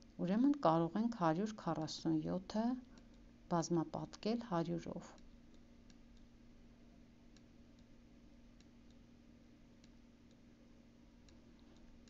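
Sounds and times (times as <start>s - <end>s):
faint steady hum: 0.0s - 12.0s
faint irregular clicks: 2.8s - 3.3s, 5.1s - 6.4s, 7.3s - 9.1s, 9.8s - 10.5s, 11.2s - 12.0s.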